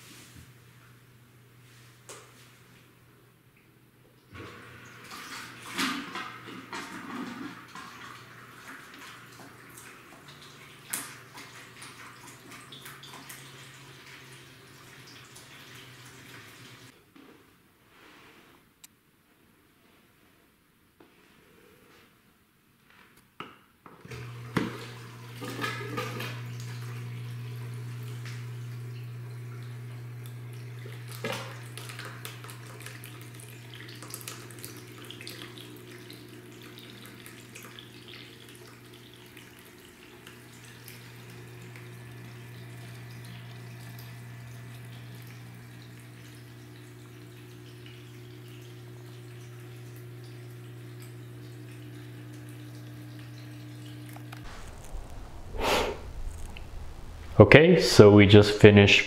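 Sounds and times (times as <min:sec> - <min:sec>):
liquid splashing into a bucket: 0:04.4 - 0:14.2, 0:24.4 - 0:27.3, 0:30.2 - 0:45.4
aquarium pump humming: 0:24.1 - 0:59.0.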